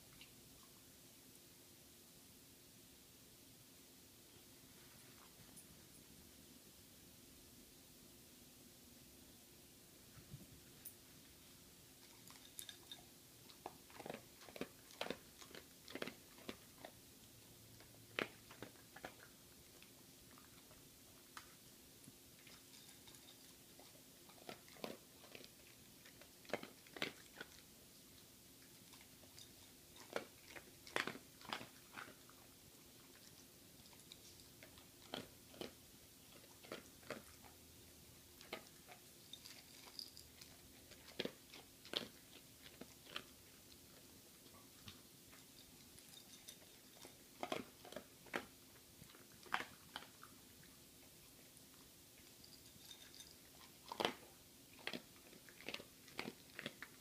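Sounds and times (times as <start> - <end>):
dog crunching dry kibble: 11.9 - 57.0.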